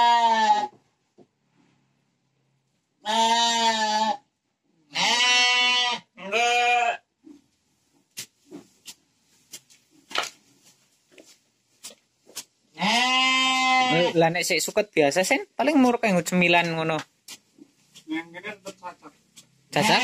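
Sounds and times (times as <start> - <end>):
sheep bleating: 0.0 - 0.8, 3.0 - 4.3, 4.9 - 7.1, 12.8 - 14.2, 19.7 - 20.0.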